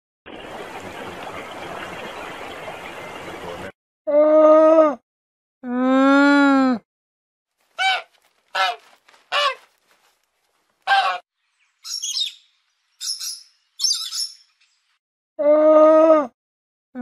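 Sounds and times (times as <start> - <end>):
geese honking: 7.7 - 10.2, 10.8 - 11.2
parrot screeching: 7.8 - 9.7, 10.9 - 11.2.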